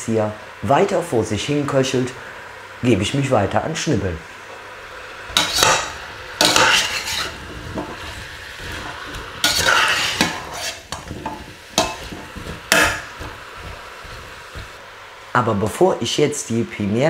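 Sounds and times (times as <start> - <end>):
faint sizzle of cooking: 0.0 - 17.0
metal spatula scraping pot: 5.3 - 14.8.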